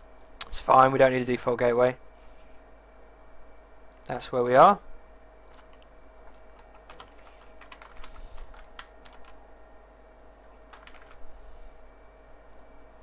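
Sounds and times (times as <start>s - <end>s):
faint steady hum: 0.0s - 13.0s
typing on keyboard: 5.5s - 9.4s, 10.7s - 11.2s.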